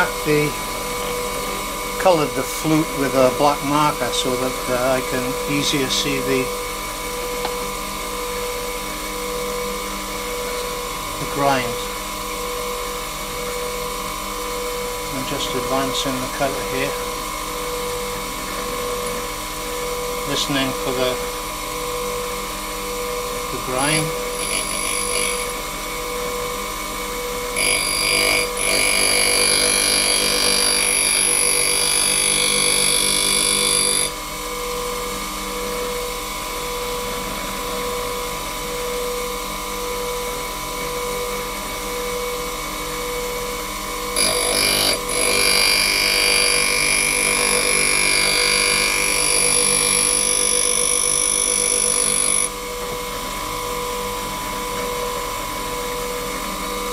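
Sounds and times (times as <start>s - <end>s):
high-pitched metal grinding: 0.0s - 35.1s, 44.0s - 52.6s
bench grinder humming: 0.0s - 56.9s.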